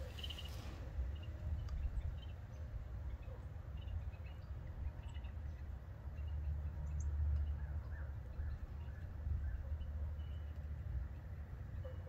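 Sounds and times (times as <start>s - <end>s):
bird chirps: 0.0s - 5.4s
wind rumble on microphone: 0.0s - 12.0s.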